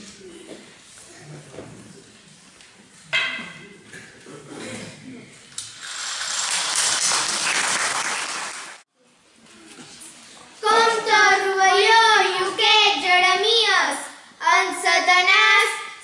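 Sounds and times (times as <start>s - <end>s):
girls singing: 10.6s - 15.8s.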